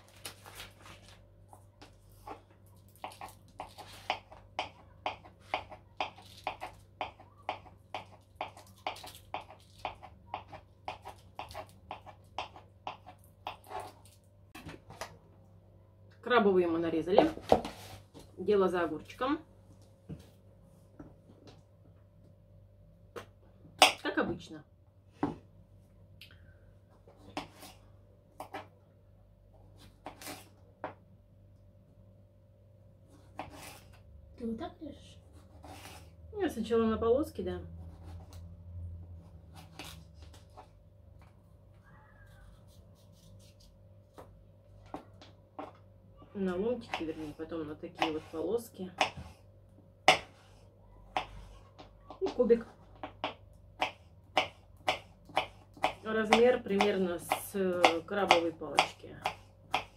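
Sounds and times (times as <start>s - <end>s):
knife chopping on wooden board: 50.0s - 50.4s, 53.0s - 59.9s.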